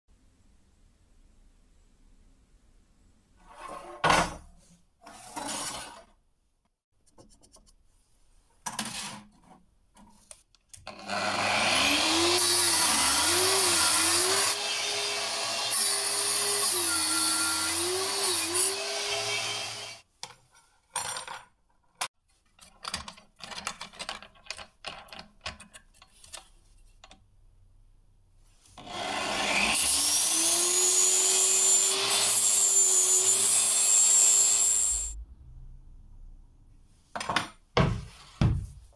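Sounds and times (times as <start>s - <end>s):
angle grinder cutting steel: 10.9s - 20.0s, 28.8s - 35.2s.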